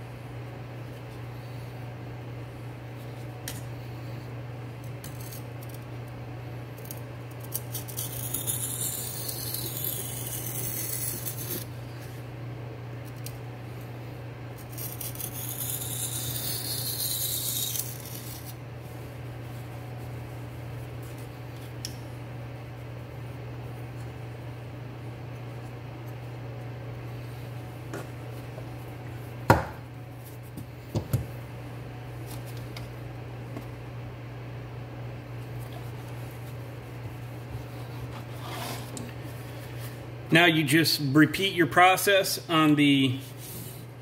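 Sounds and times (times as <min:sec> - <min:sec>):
knife scraping on sharpening stone: 0:14.7 - 0:18.5.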